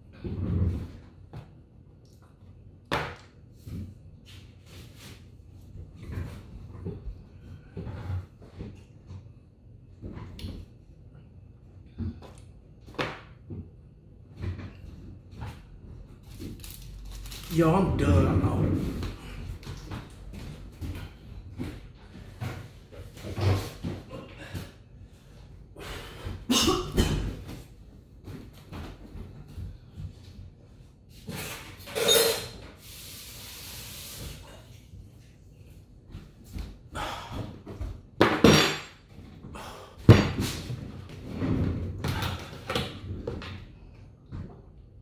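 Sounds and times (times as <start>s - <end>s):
knocks and rustles of movement: 11.9s - 32.8s, 34.3s - 45.0s
hard breaths: 23.6s - 26.5s, 36.8s - 37.8s, 39.4s - 40.6s.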